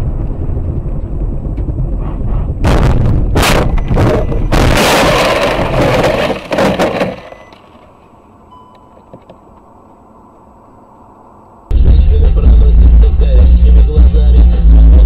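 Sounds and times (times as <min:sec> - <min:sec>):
car crashing and scraping: 0:03.4 - 0:08.0.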